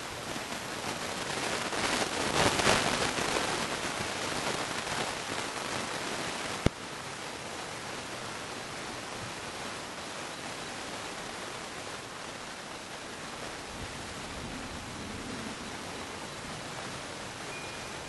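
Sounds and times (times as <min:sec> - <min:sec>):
thunderstorm rushing noise: 0:13.6 - 0:18.0.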